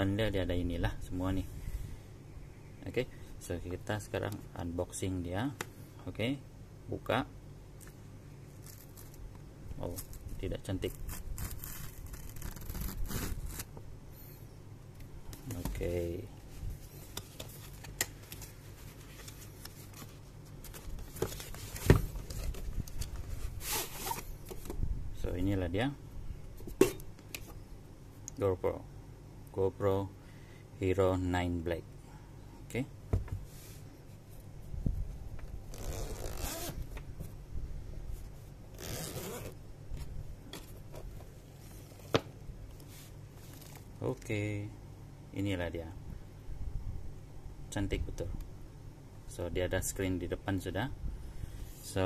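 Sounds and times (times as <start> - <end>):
zipper pulled open: 11.0 - 13.7, 35.7 - 36.8, 38.7 - 39.6.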